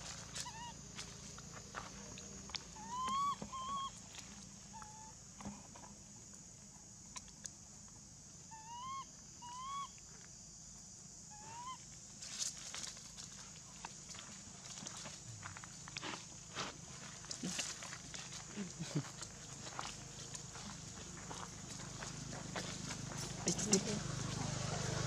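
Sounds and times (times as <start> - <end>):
monkey coo calls: 0.4 - 0.8, 2.7 - 4.0, 8.5 - 10.0, 11.3 - 11.8.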